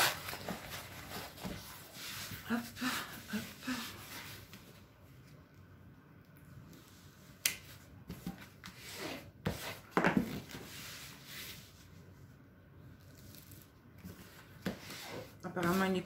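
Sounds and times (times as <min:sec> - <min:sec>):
plastic film rustling: 0:00.0 - 0:01.9.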